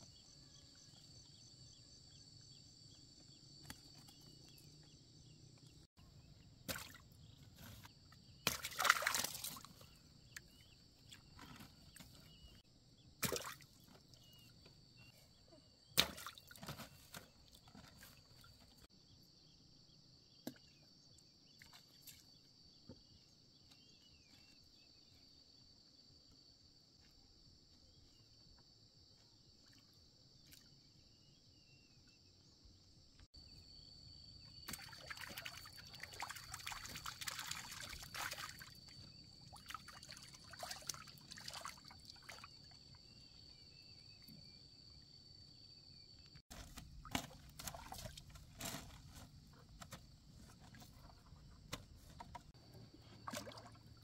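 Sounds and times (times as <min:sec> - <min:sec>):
water splashing: 0:08.5 - 0:09.8, 0:34.7 - 0:38.9, 0:39.5 - 0:42.5, 0:53.0 - 0:54.0.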